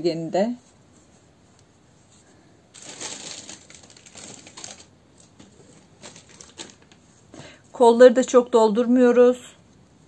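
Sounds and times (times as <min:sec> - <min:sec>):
stuffing rustling and crackling: 0:00.5 - 0:07.3.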